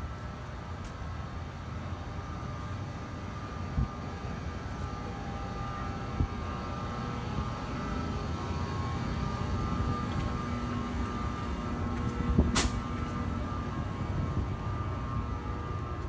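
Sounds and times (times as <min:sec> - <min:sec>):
electric locomotive humming and whining: 0:00.0 - 0:16.0.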